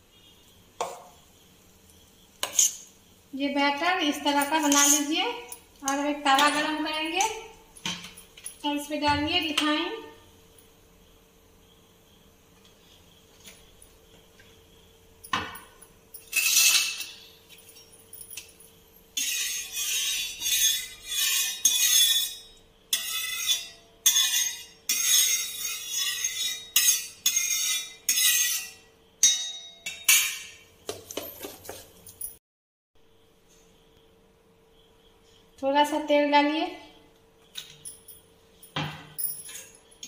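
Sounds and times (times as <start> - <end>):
metal spatula scraping hot griddle: 2.4 - 2.9, 4.6 - 5.2, 16.2 - 17.4, 19.2 - 28.9.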